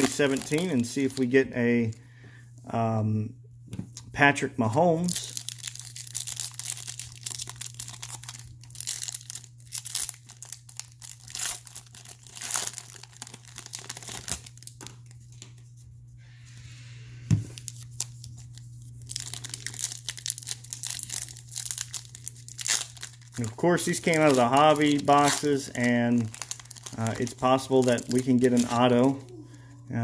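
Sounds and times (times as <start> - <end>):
foil wrapper tearing and crinkling: 0.0 - 1.4, 5.0 - 15.3, 17.5 - 29.3
low hum: 15.8 - 30.0.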